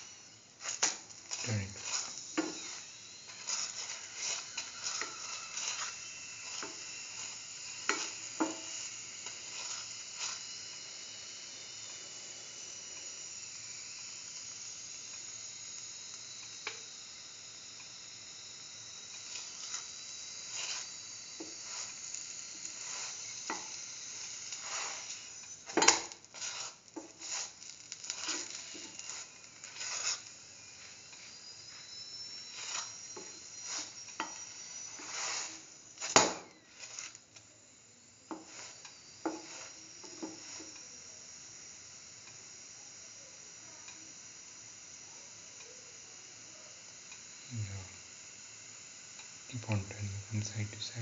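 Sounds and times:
flatbread sizzling in butter: 0.0s - 51.0s
spatula scraping metal pan: 26.4s - 27.5s.

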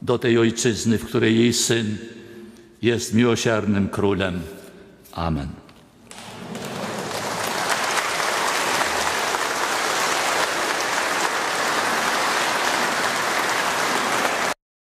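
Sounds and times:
congregation applauding: 6.1s - 14.6s.

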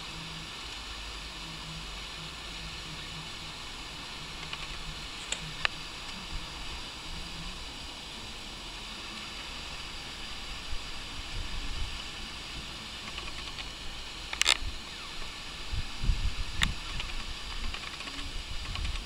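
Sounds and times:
steady background hiss: 0.0s - 19.0s
faint clicks: 4.3s - 6.2s, 13.0s - 15.3s, 16.6s - 19.0s.

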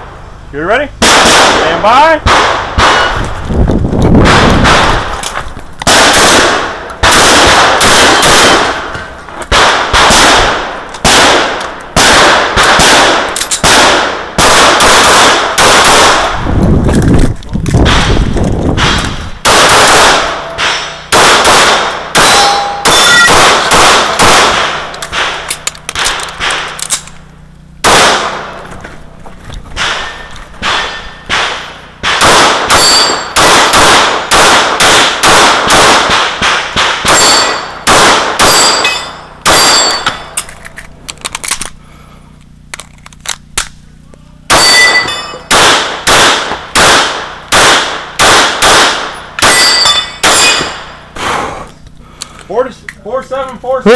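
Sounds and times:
pistol shots: 1.0s - 3.3s, 4.2s - 16.4s, 17.8s - 27.1s, 27.8s - 28.6s, 29.8s - 40.4s, 44.5s - 51.1s
steel targets clanging: 22.2s - 23.7s, 29.8s - 31.7s, 32.7s - 33.4s, 37.0s - 40.6s, 44.5s - 45.5s, 49.3s - 50.9s.

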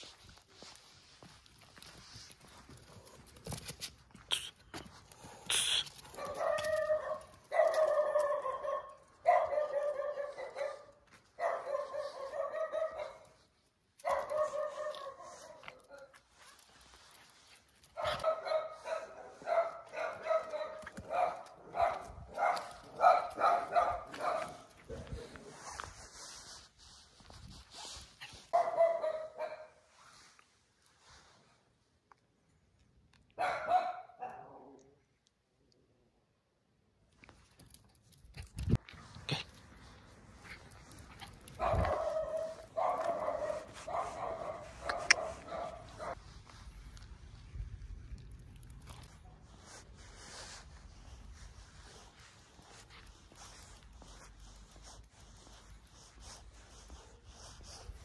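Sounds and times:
dog barking: 6.2s - 13.4s, 14.0s - 16.2s, 18.0s - 25.1s, 28.5s - 29.8s, 33.4s - 34.8s, 41.6s - 46.2s.

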